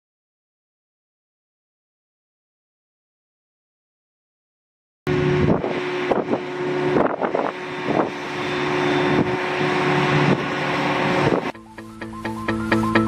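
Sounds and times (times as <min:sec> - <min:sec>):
wind gusting on microphone: 0:05.1 - 0:11.6
forage harvester droning: 0:05.1 - 0:13.0.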